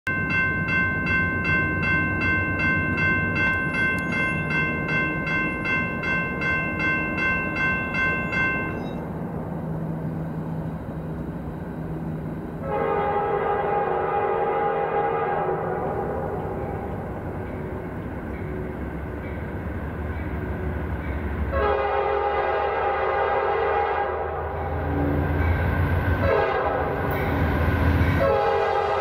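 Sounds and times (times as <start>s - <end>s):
crossing warning bell ringing: 0.1s - 9.3s, 15.4s - 22.2s, 24.7s - 29.0s
diesel train rumble: 0.1s - 29.0s
locomotive air horn: 12.6s - 16.2s, 21.5s - 24.8s, 26.2s - 27.1s, 28.2s - 29.0s.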